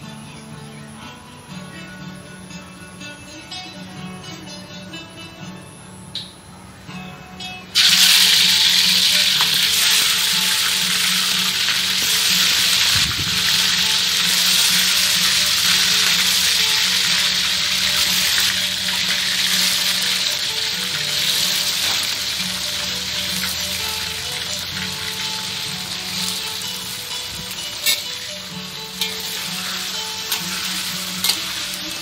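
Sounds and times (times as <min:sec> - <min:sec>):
chicken sizzling in hot oil: 0:07.8 - 0:32.0.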